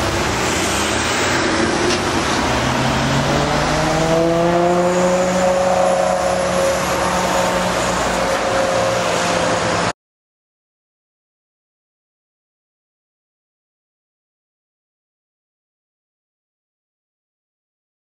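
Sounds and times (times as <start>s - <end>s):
car engine accelerating: 0.0s - 9.9s.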